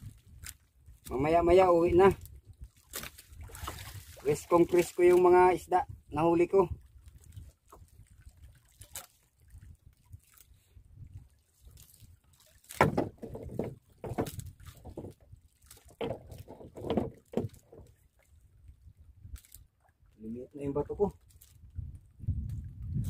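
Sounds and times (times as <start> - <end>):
water sloshing in boat hull: 0.0 - 23.0
knocks against wood: 12.7 - 15.2, 15.9 - 17.8.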